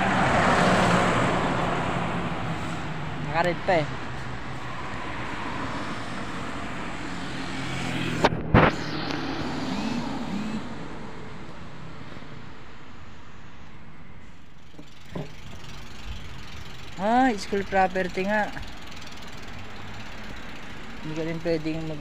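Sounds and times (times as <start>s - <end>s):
road traffic noise: 0.0s - 22.0s
vehicle engine running: 14.6s - 22.0s.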